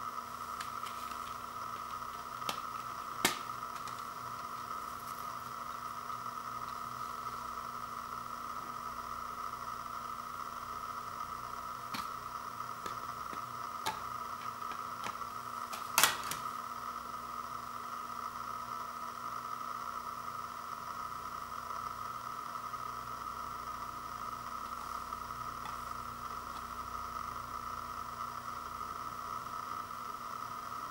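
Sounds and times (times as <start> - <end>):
steady hiss: 0.0 - 30.9
disc snapping free: 0.5 - 7.4.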